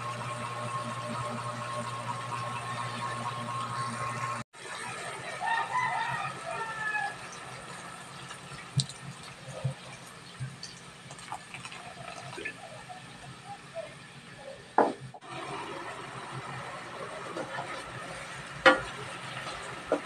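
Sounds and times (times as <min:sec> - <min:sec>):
soda splashing and fizzing: 0:04.6 - 0:13.7.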